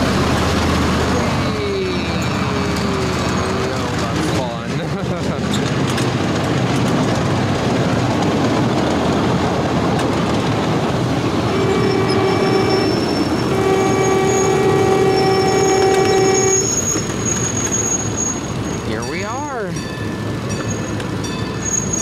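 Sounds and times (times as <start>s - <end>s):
miniature train wheels rumbling: 0.0s - 22.0s
locomotive horn blasts: 11.2s - 18.5s.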